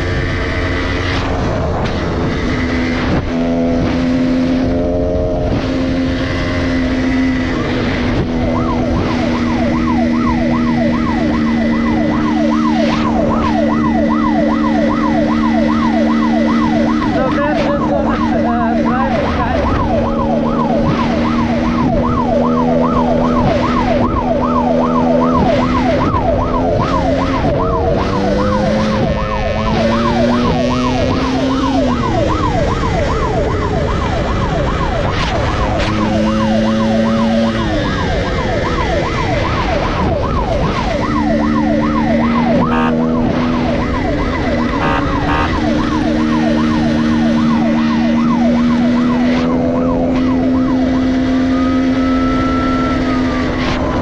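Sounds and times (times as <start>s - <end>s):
police siren yelping: 0.0s - 54.0s
dirt bike engine running: 35.1s - 54.0s.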